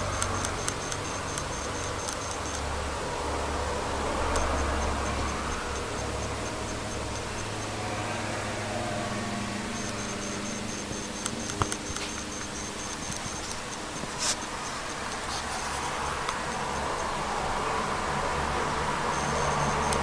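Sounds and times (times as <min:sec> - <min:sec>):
sharp clicks: 0:00.0 - 0:02.7, 0:04.2 - 0:07.7, 0:09.7 - 0:15.6, 0:19.1 - 0:20.0
electrical hum with hiss: 0:00.0 - 0:20.0
high pulsing whine: 0:00.0 - 0:20.0.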